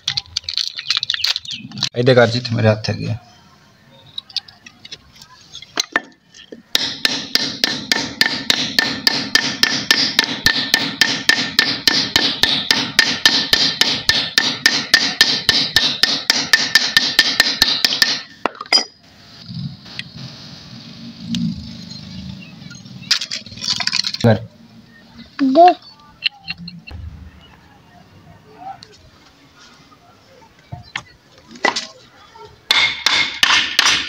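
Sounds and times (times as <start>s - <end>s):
hammering on metal: 6.7s - 18.4s, 32.7s - 34.0s.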